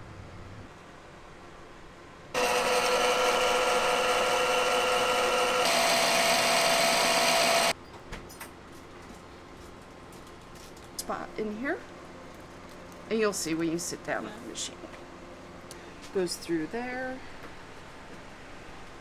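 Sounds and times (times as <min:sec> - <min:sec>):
sewing machine motor running: 0:02.4 - 0:07.7.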